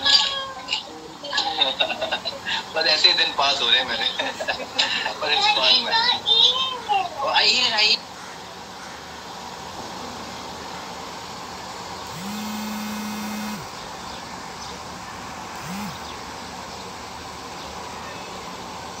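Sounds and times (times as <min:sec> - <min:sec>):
steady hiss: 0:00.0 - 0:19.0
phone vibrating: 0:12.1 - 0:13.8, 0:15.6 - 0:16.1.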